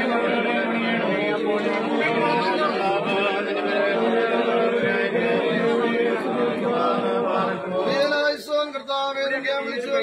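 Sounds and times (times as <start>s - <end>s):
men chanting in unison: 0.0s - 10.0s.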